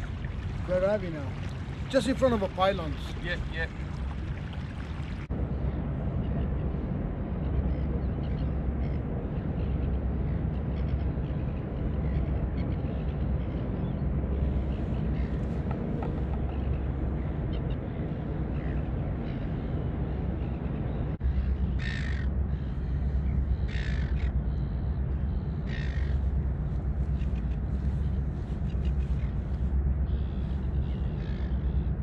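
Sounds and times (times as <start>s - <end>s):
crow cawing: 21.8s - 22.8s, 23.6s - 24.3s, 25.7s - 26.2s.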